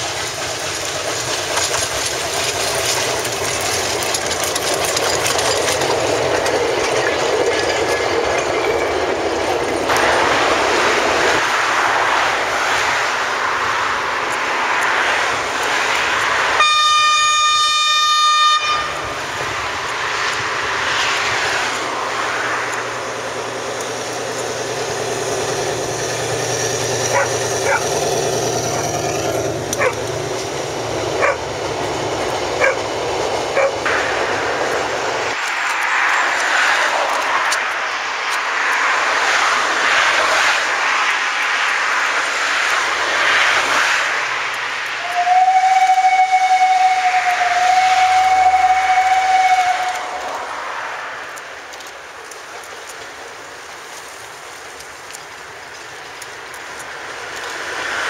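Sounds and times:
train running past: 0.0 - 58.0
locomotive horn: 16.5 - 19.4, 45.0 - 50.8.

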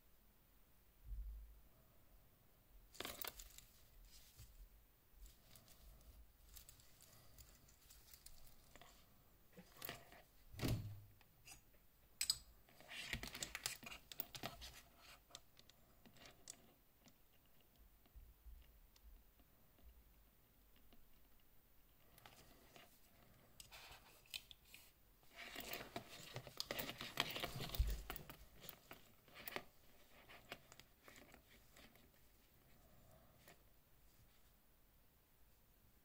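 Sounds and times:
wristwatch handling rustling: 2.9 - 10.5, 12.7 - 16.7, 22.1 - 34.5.

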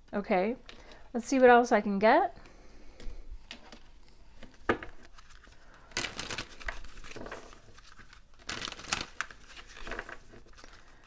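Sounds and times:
cards sliding and rustling: 3.0 - 11.0.

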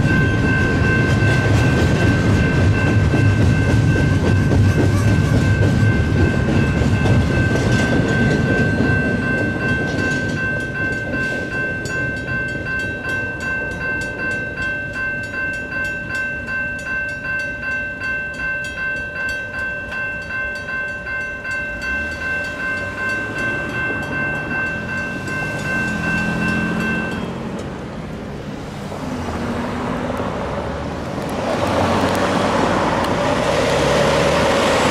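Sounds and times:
electronic crossing bell: 0.0 - 27.7
mechanical crossing bell: 0.0 - 27.8
train rumbling and clattering: 0.0 - 34.9
truck engine and tyres: 0.0 - 34.9.

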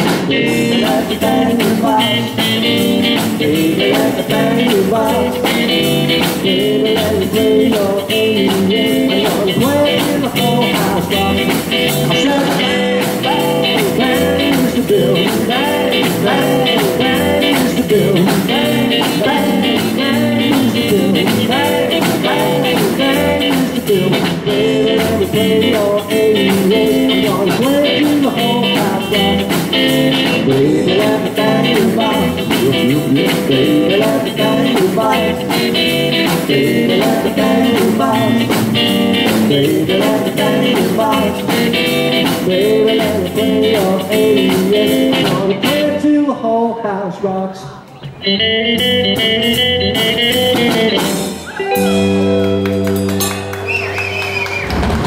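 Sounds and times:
drums keeping a steady beat: 0.0 - 46.0, 48.0 - 55.0
upright double bass: 0.0 - 46.0, 48.4 - 54.0
electric guitar solo: 48.0 - 55.0.

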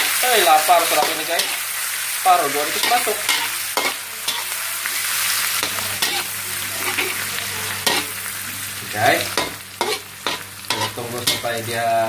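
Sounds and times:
onions sizzling in hot oil: 0.0 - 12.0
metal spatula scraping a wok: 2.8 - 4.6, 5.6 - 7.2, 7.8 - 8.2, 9.4 - 11.5.

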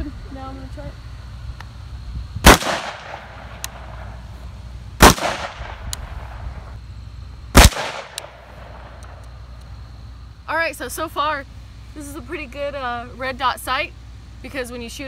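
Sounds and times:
rifle shots with echo: 2.4 - 4.1, 5.0 - 6.3, 7.6 - 9.0.

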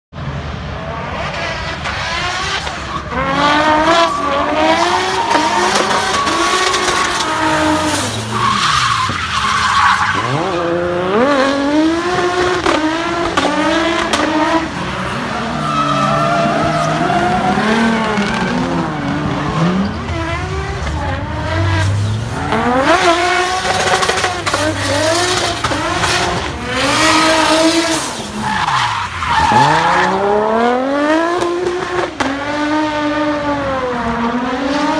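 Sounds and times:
car engine revving: 0.7 - 34.9
tyres squealing: 2.8 - 10.4.

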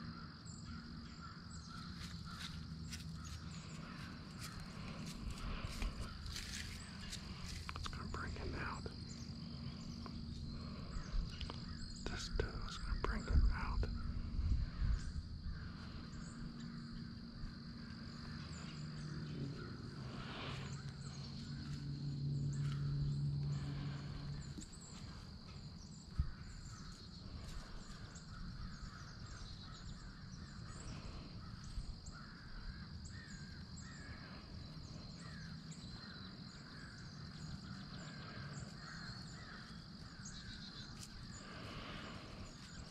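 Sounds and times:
birds calling: 0.0 - 42.9
low hum: 1.0 - 32.0.

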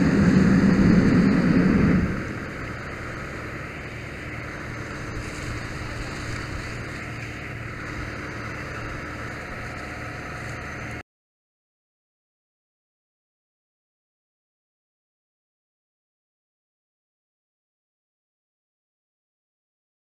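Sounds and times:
engine running low: 0.0 - 11.0
fire hose spraying water: 0.0 - 11.0.

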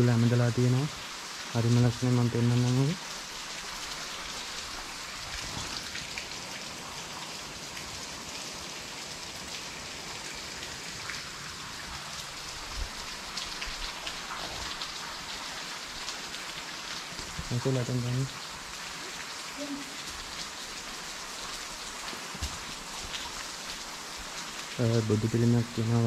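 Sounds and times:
water dripping and trickling: 0.0 - 26.0.

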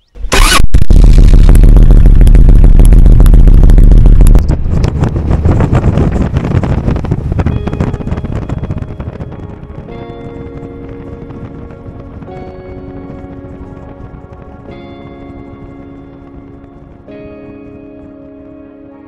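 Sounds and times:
rushing wind: 0.0 - 19.0.

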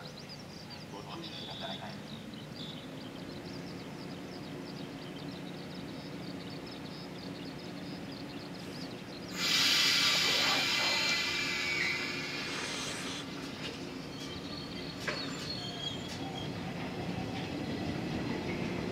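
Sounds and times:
electric train humming: 0.0 - 18.9
compressed air hiss: 9.3 - 13.4.

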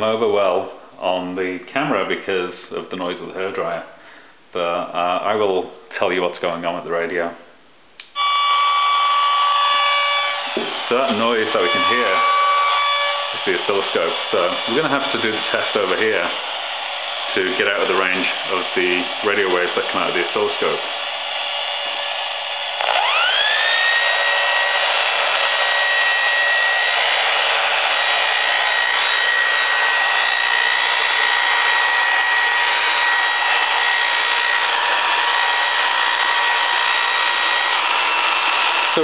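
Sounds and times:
hairdryer whine and rush: 8.2 - 39.0
radio static hiss: 10.6 - 21.1.

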